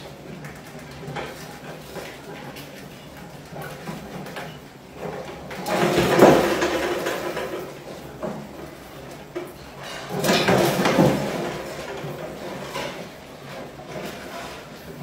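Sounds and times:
cans rattling on plastic box: 0:05.5 - 0:07.8.

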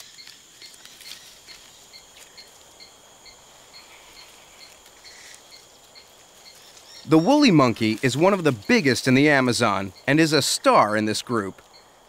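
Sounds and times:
insect chirping: 0:00.0 - 0:12.0
insect drone: 0:00.0 - 0:12.0.

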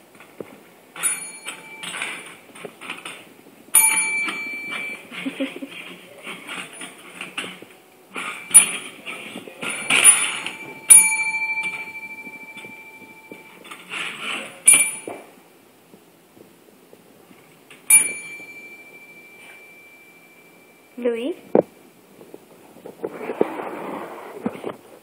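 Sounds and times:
bell scraping on tile: 0:01.0 - 0:03.1, 0:03.8 - 0:15.2, 0:17.9 - 0:21.0
service bell dinging: 0:01.0 - 0:05.6, 0:06.3 - 0:15.4, 0:17.9 - 0:21.4.

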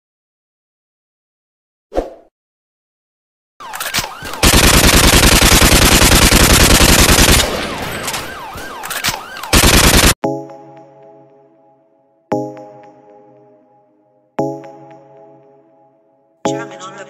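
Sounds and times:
automatic gunfire: 0:03.8 - 0:10.2.

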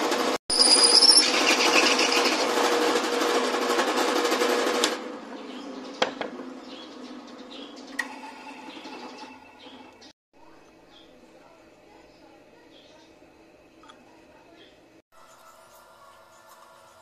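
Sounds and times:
drill bit grinding through steel: 0:00.5 - 0:02.5.

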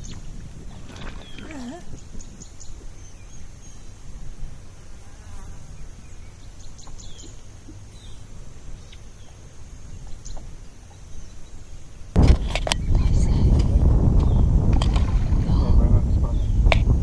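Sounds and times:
insects buzzing: 0:00.0 - 0:12.2
low rumble: 0:12.2 - 0:17.0.

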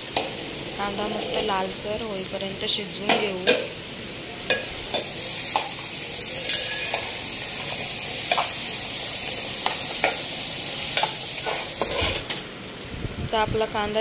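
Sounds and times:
onion sizzling in hot oil: 0:00.0 - 0:12.3
metal spoon scraping a pot: 0:11.0 - 0:12.4.

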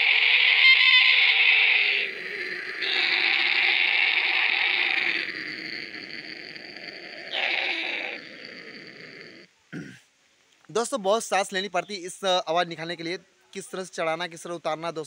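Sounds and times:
man imitating aeroplane engine: 0:01.9 - 0:09.4.

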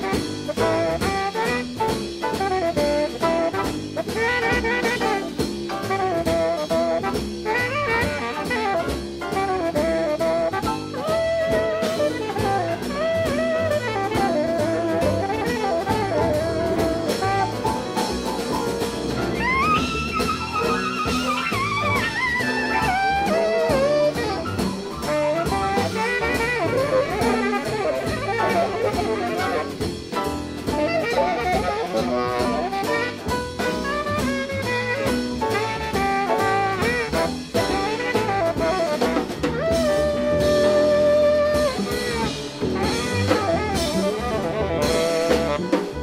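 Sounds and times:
jazz band playing: 0:00.0 - 0:46.0
tenor saxophone: 0:00.0 - 0:46.0.

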